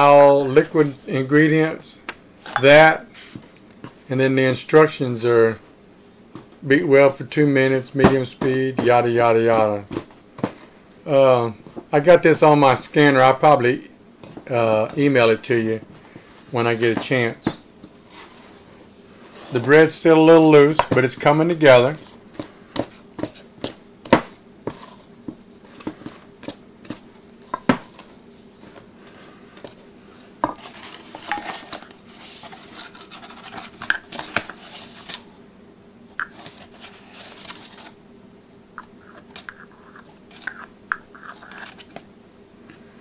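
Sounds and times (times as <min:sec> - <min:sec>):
wooden spoon stirring dough: 0:14.2 - 0:35.1, 0:38.8 - 0:42.0.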